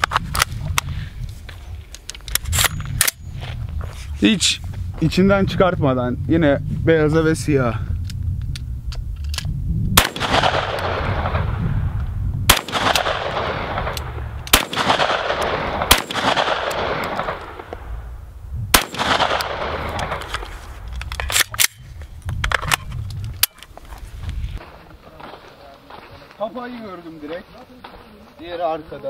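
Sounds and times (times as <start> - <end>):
shotgun shots with echo: 10.0 - 11.7, 12.5 - 17.7, 18.7 - 20.2.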